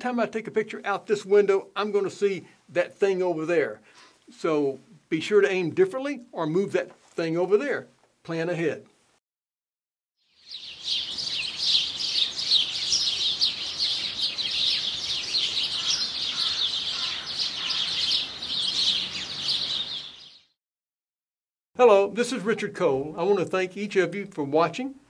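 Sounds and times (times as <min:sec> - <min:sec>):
songbirds chirping: 0:10.2 - 0:20.6.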